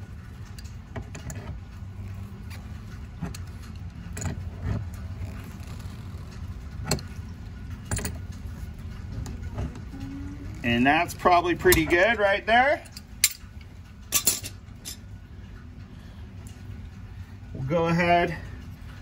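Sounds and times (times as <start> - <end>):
steady low rumble: 0.0 - 19.0
metal tool clicks and clinks: 12.8 - 15.0.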